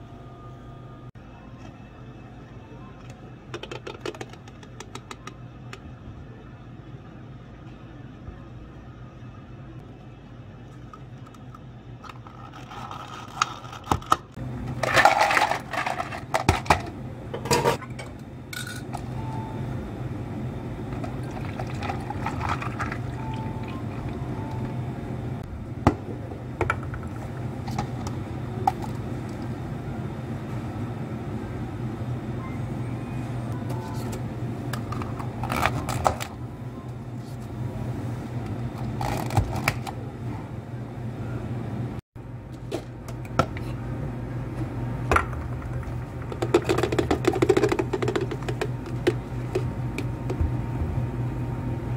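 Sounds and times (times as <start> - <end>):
steady low hum: 0.0 - 51.9
plastic lids pressed onto cups: 46.3 - 50.4.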